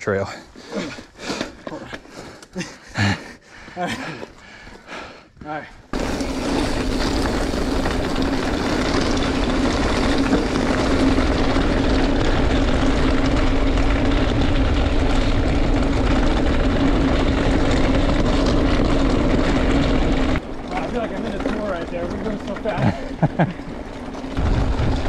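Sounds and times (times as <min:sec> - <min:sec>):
bike drone: 0:00.6 - 0:25.0
wind rushing over microphone: 0:24.4 - 0:25.0.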